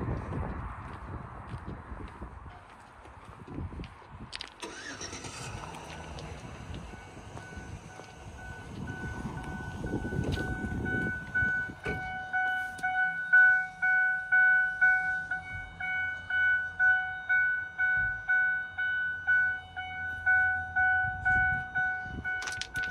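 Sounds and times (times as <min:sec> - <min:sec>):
truck dash warning chime: 0:06.7 - 0:22.6.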